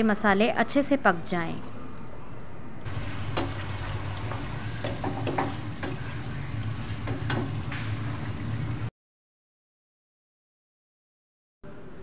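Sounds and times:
meat sizzling in a pot: 0:02.9 - 0:08.9
spoon knocking on pot: 0:04.3 - 0:06.0.

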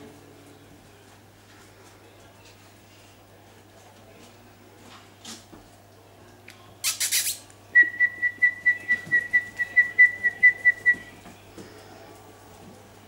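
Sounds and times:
quick hissing sounds: 0:06.8 - 0:07.5.

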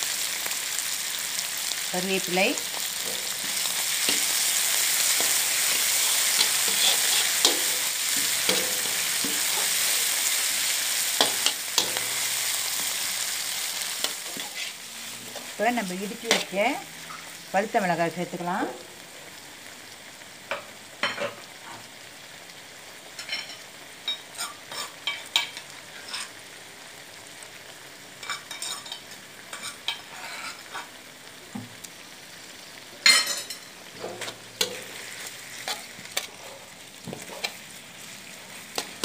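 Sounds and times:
vegetables sizzling in a wok: 0:00.0 - 0:39.0
metal spatula scraping a pan: 0:02.7 - 0:17.4, 0:24.3 - 0:26.4, 0:28.2 - 0:30.9, 0:33.4 - 0:39.0.

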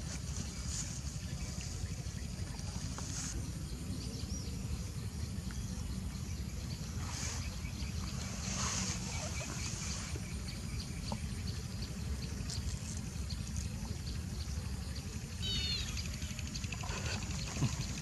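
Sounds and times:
bird chirping call: 0:14.2 - 0:18.0.

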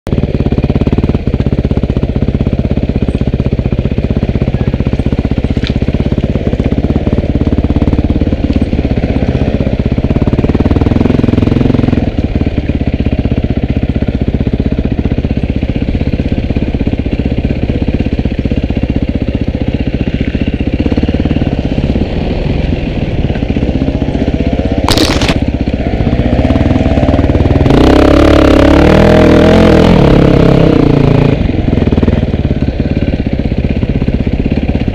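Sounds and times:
dirt bike engine revving: 0:20.4 - 0:32.2
short sharp noise: 0:24.8 - 0:25.5.

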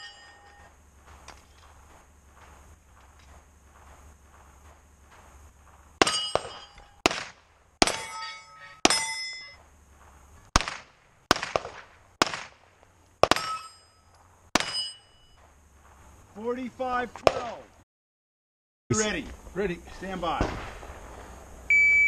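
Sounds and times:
steel plate clanging: 0:00.0 - 0:00.7, 0:06.0 - 0:07.0, 0:07.8 - 0:09.6, 0:13.3 - 0:15.4
pistol shots: 0:06.0 - 0:08.1, 0:10.5 - 0:13.7, 0:14.6 - 0:14.9, 0:17.2 - 0:17.6, 0:20.4 - 0:21.0.

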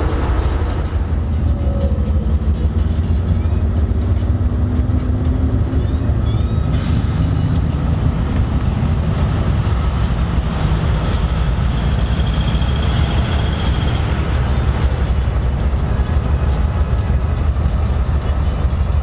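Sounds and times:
locomotive engine rumble: 0:00.0 - 0:19.0.

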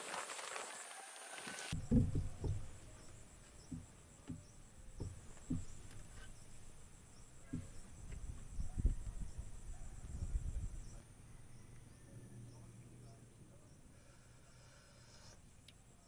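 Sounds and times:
insects chirring: 0:00.0 - 0:16.0
soft low thuds: 0:01.8 - 0:11.0.

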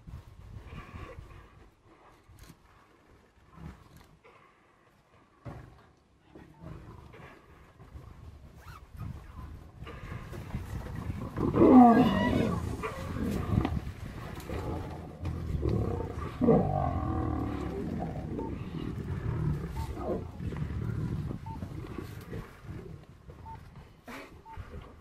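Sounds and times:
lions snarling and growling: 0:09.8 - 0:23.6.

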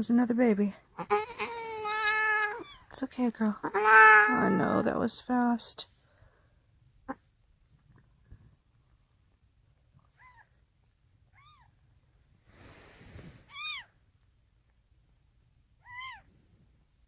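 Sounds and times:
kitten mewing: 0:01.0 - 0:02.8, 0:03.6 - 0:04.7, 0:15.8 - 0:16.3.

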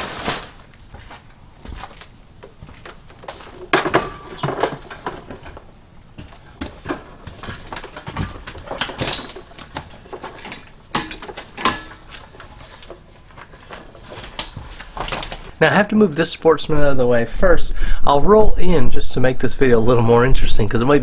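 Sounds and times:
compressor and hose clattering: 0:00.0 - 0:15.6.

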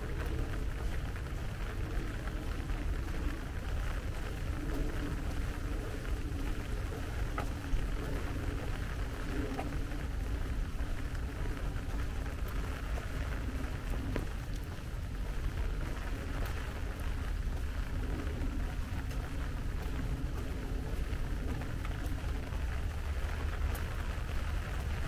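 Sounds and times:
low continuous rumble: 0:00.0 - 0:25.0
steady rain: 0:00.0 - 0:25.0.

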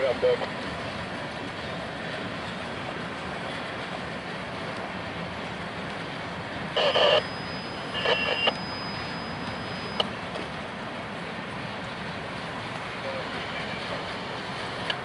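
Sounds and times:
freight train wheels on rail: 0:00.1 - 0:06.8, 0:07.7 - 0:15.0
short high-pitched tone: 0:06.8 - 0:10.0
faint thin high tone: 0:06.8 - 0:10.1.

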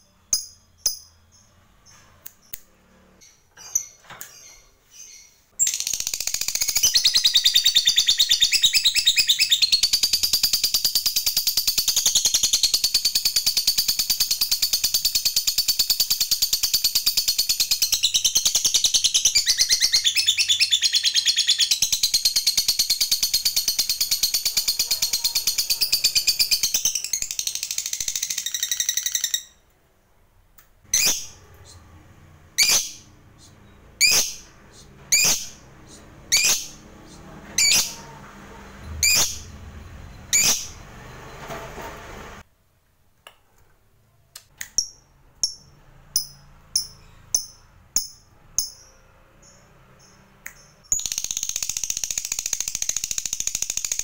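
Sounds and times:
lovebird rapid rattling chatter: 0:05.6 - 0:07.5, 0:21.0 - 0:29.4, 0:50.9 - 0:54.0.

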